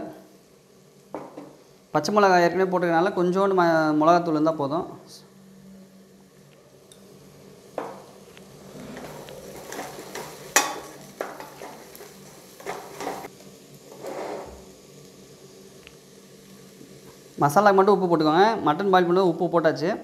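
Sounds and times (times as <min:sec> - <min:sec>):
food sizzling in oil: 0:05.9 - 0:19.5
wooden spatula scraping metal pot: 0:08.7 - 0:13.3.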